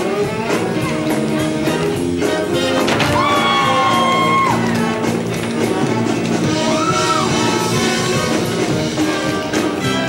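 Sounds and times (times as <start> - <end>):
live band playing: 0.0 - 10.0
drum hits: 2.6 - 6.6.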